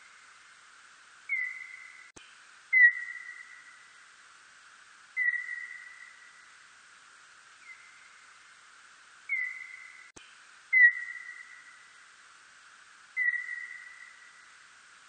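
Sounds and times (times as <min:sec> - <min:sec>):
steady hiss: 0:00.0 - 0:15.0
whistle-like bat calls: 0:01.3 - 0:02.1, 0:02.7 - 0:03.8, 0:05.2 - 0:06.4, 0:09.3 - 0:10.1, 0:10.7 - 0:11.8, 0:13.2 - 0:14.4.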